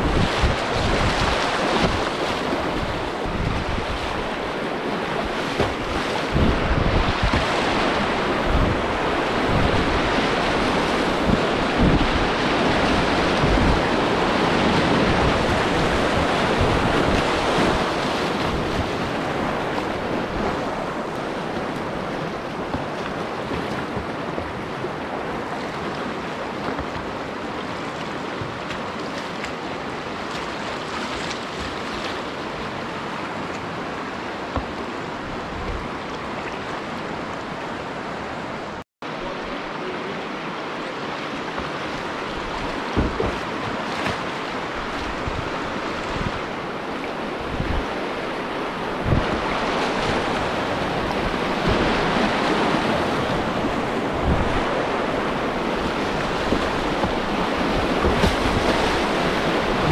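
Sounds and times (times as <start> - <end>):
rushing whitewater: 0.0 - 59.9
low thumps: 42.4 - 43.5.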